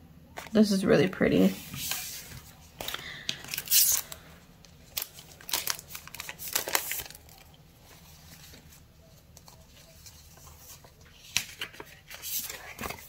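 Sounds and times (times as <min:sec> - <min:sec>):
sticker packaging crinkling: 0:02.8 - 0:08.6.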